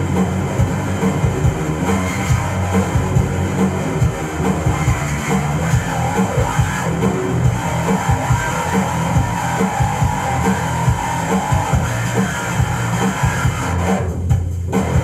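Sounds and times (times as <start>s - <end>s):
fast electric bass line: 0.0s - 15.0s
heavy metal backing track: 0.0s - 15.0s.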